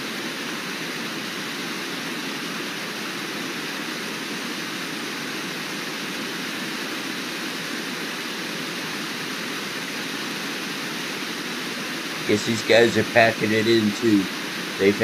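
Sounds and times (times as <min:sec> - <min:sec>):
river rapids roaring: 0:11.8 - 0:15.0.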